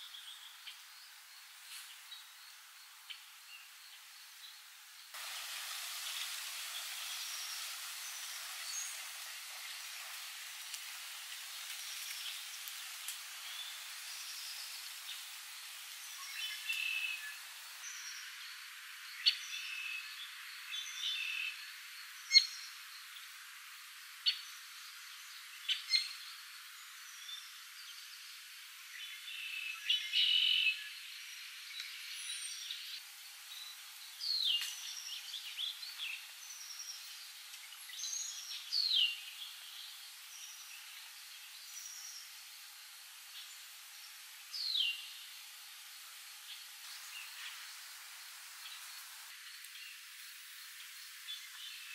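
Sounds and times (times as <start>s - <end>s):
light rain hiss: 0.0s - 51.9s
songbirds singing and calling: 5.3s - 23.3s, 25.2s - 42.4s.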